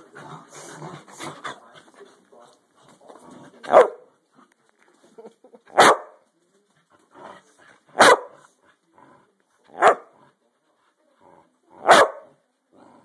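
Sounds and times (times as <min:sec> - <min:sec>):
dog barking: 0:03.7 - 0:04.0, 0:05.8 - 0:06.2, 0:08.0 - 0:08.4, 0:09.8 - 0:10.1, 0:11.8 - 0:12.3.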